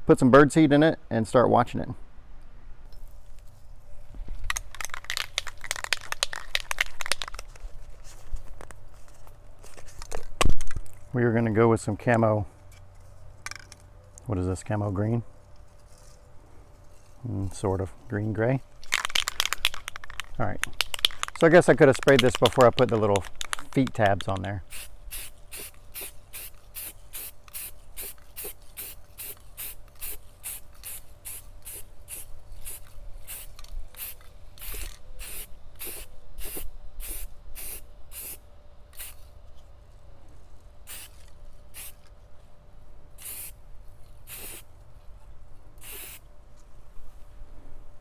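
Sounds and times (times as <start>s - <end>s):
spray paint can hissing: 4.5s - 7.4s, 24.7s - 39.3s, 40.9s - 42.0s, 43.2s - 43.6s, 44.2s - 44.7s, 45.8s - 46.2s.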